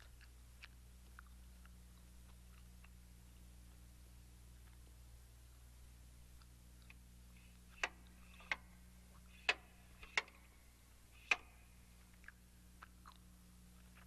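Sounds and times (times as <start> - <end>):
low steady hum: 0.0 - 14.0
console switches clicking: 7.8 - 8.7, 11.2 - 11.6.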